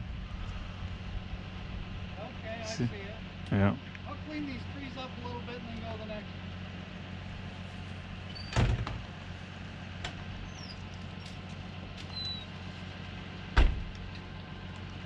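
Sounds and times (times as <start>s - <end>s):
distant diesel engine humming: 0.0s - 15.0s
heavy thump: 13.6s - 13.9s.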